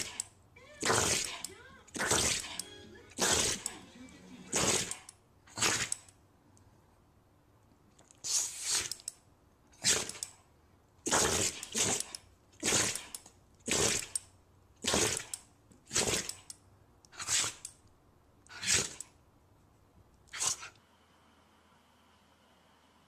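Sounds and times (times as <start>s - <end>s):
dog sneezing: 4.5s - 5.9s, 8.2s - 9.0s, 17.2s - 17.6s, 20.3s - 20.7s.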